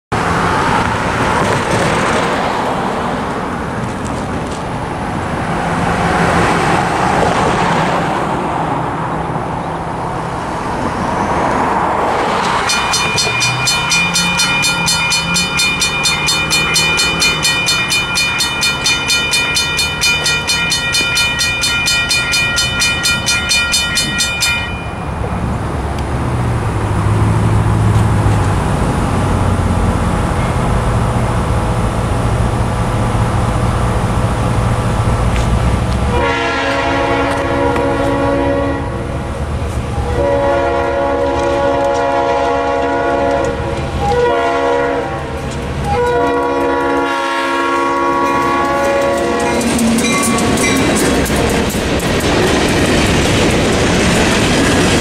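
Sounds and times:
road traffic passing: 0:00.1 - 0:55.0
railroad crossing bells ringing: 0:12.4 - 0:25.7, 0:39.9 - 0:55.0.

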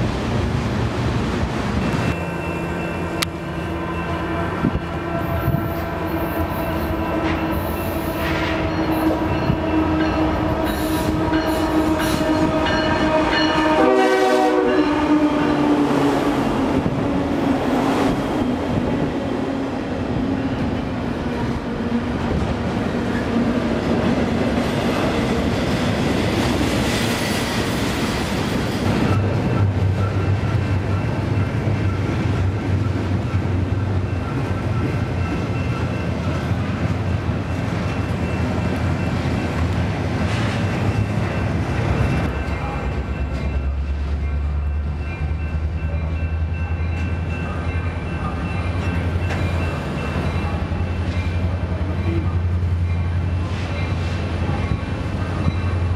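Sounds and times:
train horn: 0:03.8 - 0:16.7
freight cars rumbling and clattering: 0:18.2 - 0:55.9.

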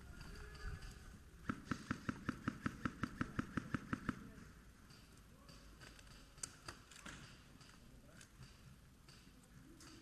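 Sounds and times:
airsoft gun rapid fire: 0:00.8 - 0:04.3.

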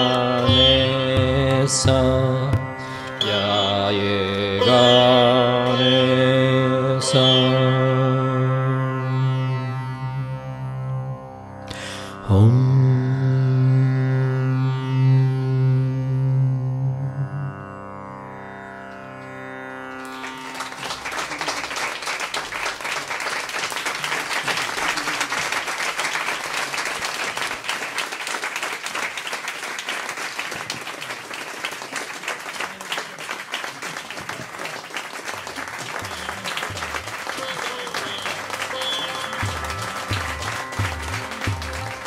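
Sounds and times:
sitar note ringing: 0:00.0 - 0:12.2, 0:37.0 - 0:42.0
audience applause: 0:20.0 - 0:42.0.

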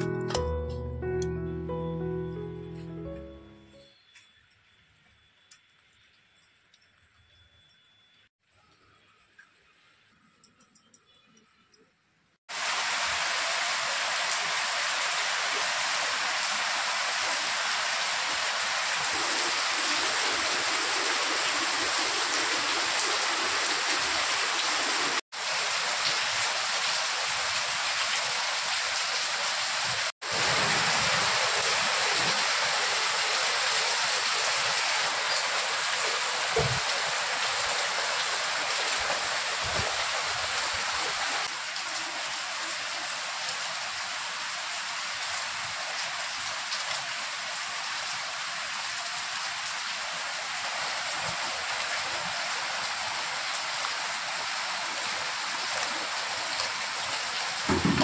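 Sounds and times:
steady rain falling: 0:12.5 - 0:58.0.

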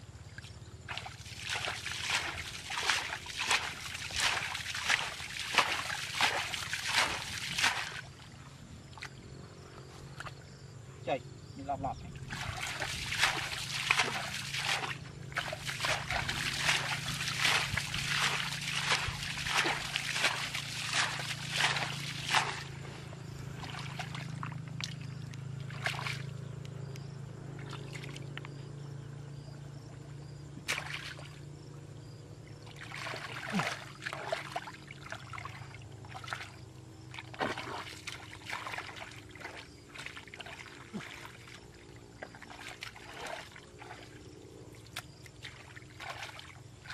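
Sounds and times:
hands splashing in muddy water: 0:00.9 - 0:08.2, 0:12.3 - 0:26.3, 0:30.6 - 0:31.4, 0:32.7 - 0:46.9.

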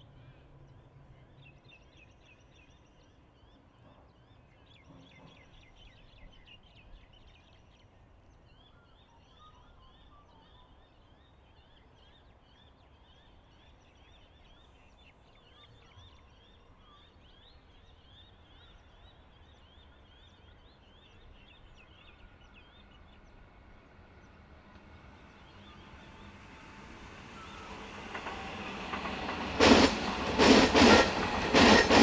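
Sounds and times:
birds chirping: 0:04.8 - 0:32.0
train rumble: 0:21.2 - 0:32.0.

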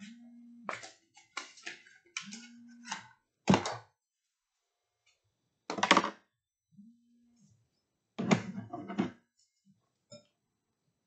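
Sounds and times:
faint low tone: 0:00.0 - 0:00.7, 0:06.7 - 0:07.8.

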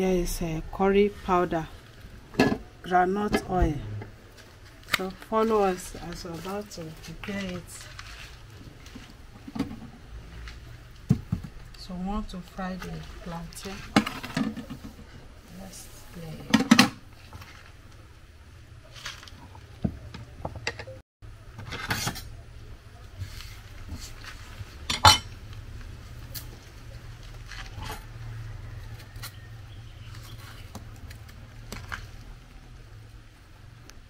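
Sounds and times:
plates and knife clinking: 0:24.9 - 0:25.3.

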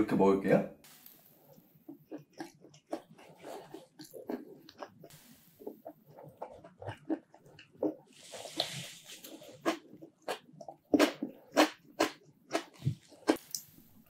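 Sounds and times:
chewing with mouth clicks: 0:01.9 - 0:13.8.

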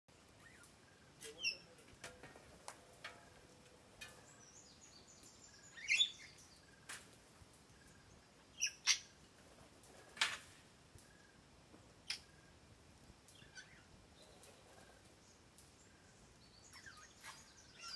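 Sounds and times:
parrots squawking and chirping: 0:08.6 - 0:09.2, 0:13.4 - 0:13.9, 0:16.7 - 0:17.9.

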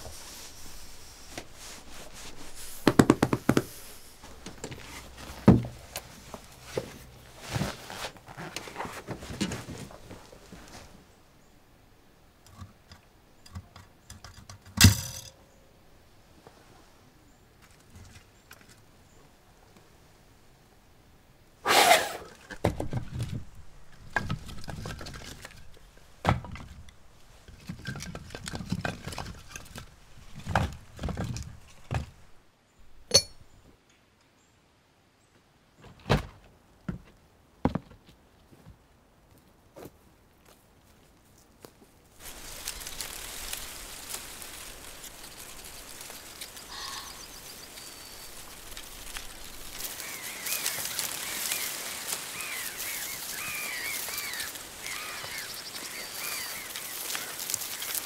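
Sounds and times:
wind through reeds: 0:00.0 - 0:14.0, 0:15.7 - 0:33.6, 0:41.3 - 0:58.0
objects knocking and clinking: 0:33.1 - 0:33.4
sharp ringing clink: 0:33.1 - 0:33.4.

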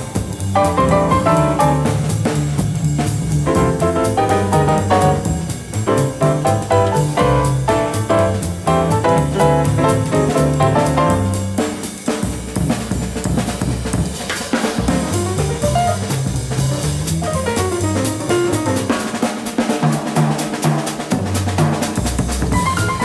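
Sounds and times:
piano notes: 0:00.0 - 0:02.3, 0:03.4 - 0:11.9, 0:14.8 - 0:19.4, 0:22.5 - 0:23.0
upright bass: 0:00.0 - 0:19.2, 0:22.1 - 0:23.0
drum kit playing: 0:00.0 - 0:23.0.

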